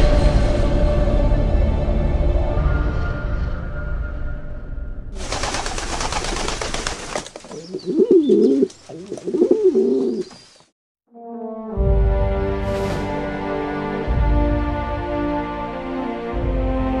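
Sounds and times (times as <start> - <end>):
pigeon cooing: 7.5 - 10.4.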